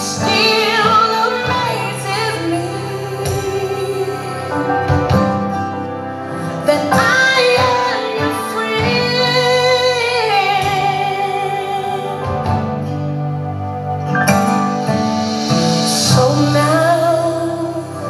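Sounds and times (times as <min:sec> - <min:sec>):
woman singing gospel: 0:00.0 - 0:04.7, 0:06.6 - 0:12.5, 0:15.8 - 0:18.0
sustained instrumental backing: 0:00.0 - 0:18.0.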